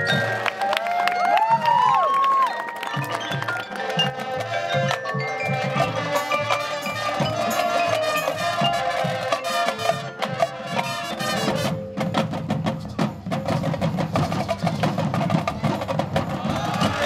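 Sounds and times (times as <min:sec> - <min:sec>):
mallet keyboard notes: 0:00.0 - 0:12.2
marching band playing: 0:00.0 - 0:17.0
rapid percussive taps: 0:02.2 - 0:06.7.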